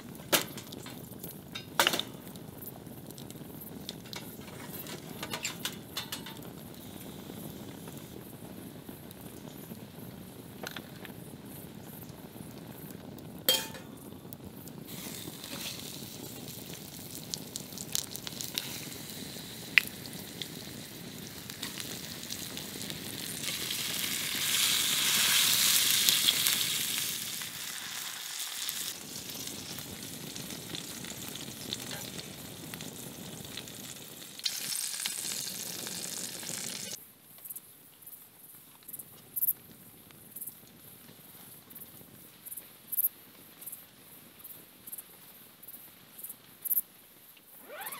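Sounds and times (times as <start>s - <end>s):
fish sizzling in frying oil: 0.0s - 37.0s.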